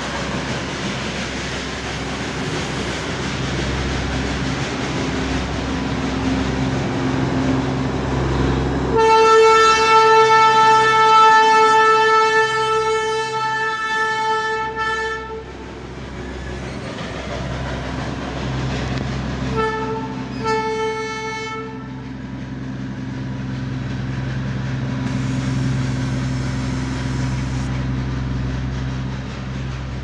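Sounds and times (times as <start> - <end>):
locomotive horn blasts: 8.9 - 15.5, 19.5 - 22.0
low engine drone: 21.7 - 30.0.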